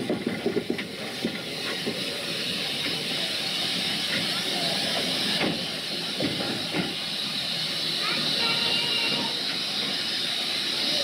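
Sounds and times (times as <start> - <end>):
steam locomotive hissing: 0.0 - 11.0.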